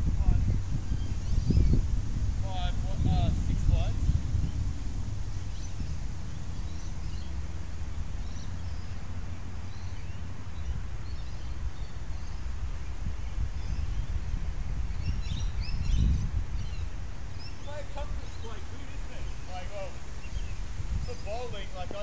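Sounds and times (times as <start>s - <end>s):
wind rumbling on microphone: 0.0s - 22.0s
faint bird chirps: 5.3s - 14.2s.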